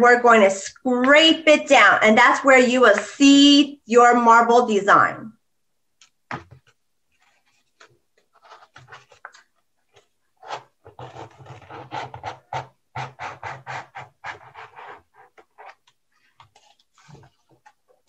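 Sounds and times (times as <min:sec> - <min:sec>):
cardboard scraping across paper: 0:07.1 - 0:09.3, 0:09.9 - 0:17.6.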